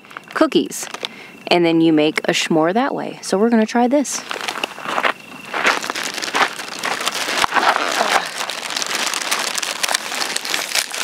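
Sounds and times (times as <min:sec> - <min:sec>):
plastic packet crinkling: 0:00.8 - 0:01.1, 0:04.2 - 0:11.0
campfire crackling and popping: 0:04.3 - 0:11.0.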